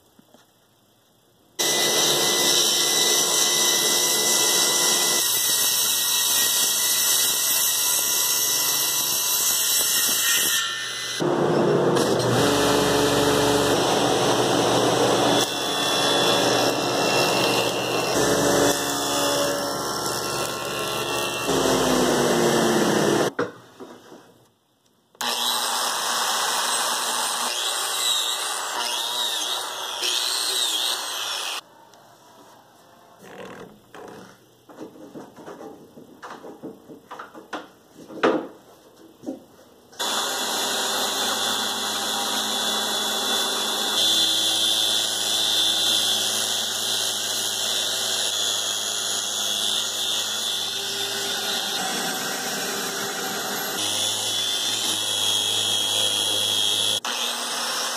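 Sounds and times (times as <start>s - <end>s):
table saw cutting wood: 1.6s - 23.3s, 25.2s - 31.6s, 40.0s - 57.9s.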